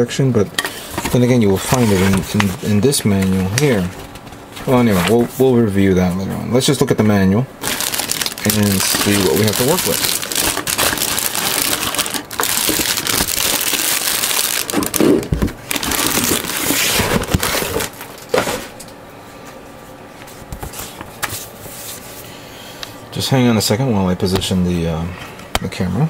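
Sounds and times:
plastic bags crinkling: 7.6s - 18.8s.

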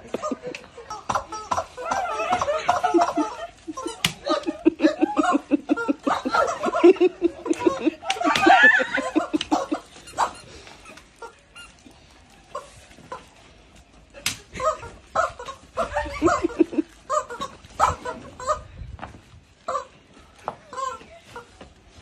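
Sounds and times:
women laughing: 0.0s - 10.4s, 14.2s - 18.7s
rubber chickens squawking: 0.0s - 11.9s, 14.5s - 18.8s
sharp smacks: 14.2s - 14.5s.

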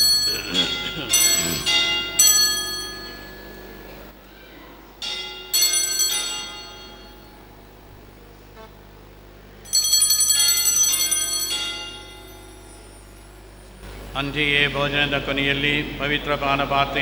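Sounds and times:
altar bells ringing: 0.0s - 4.1s, 5.0s - 7.6s, 9.6s - 13.7s.

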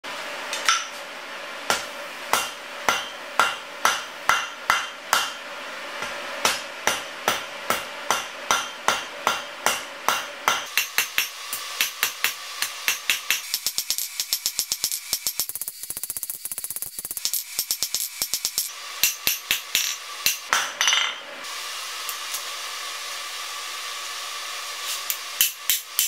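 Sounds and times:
hammer striking steel on anvil: 0.6s - 1.0s, 1.7s - 5.4s, 6.0s - 15.4s, 17.2s - 21.2s, 25.1s - 26.0s.

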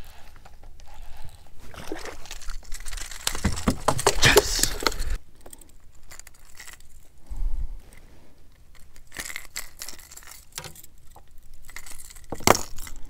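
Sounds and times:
fishing tackle clicking and rattling: 2.2s - 7.1s, 8.7s - 13.0s.

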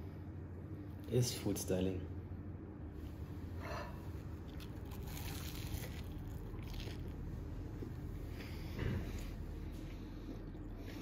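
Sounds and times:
low hum: 2.0s - 11.0s
chewing: 4.5s - 7.2s
crunchy bite: 4.5s - 7.2s.

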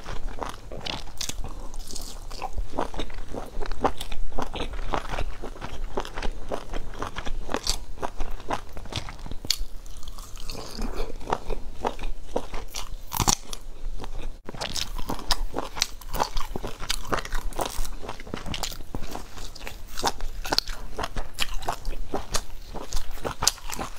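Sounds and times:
person chewing crunchy food: 0.0s - 23.9s.

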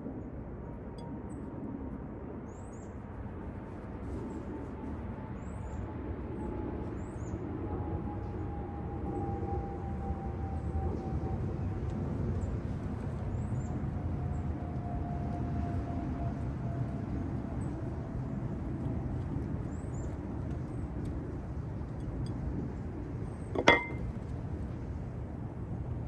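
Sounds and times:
plate clinking: 23.6s - 24.1s.

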